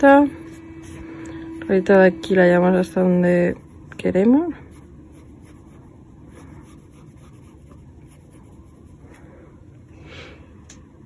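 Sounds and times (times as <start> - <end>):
pencil scratching on paper: 0.4 - 4.0, 4.6 - 9.0.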